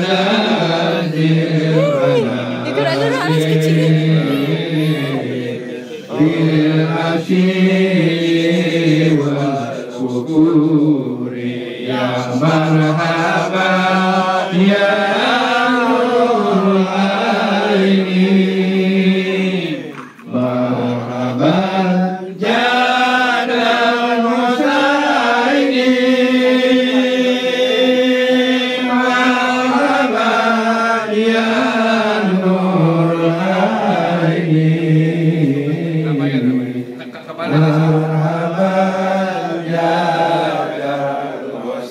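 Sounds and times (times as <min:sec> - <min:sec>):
group of voices chanting: 0:00.0 - 0:09.9.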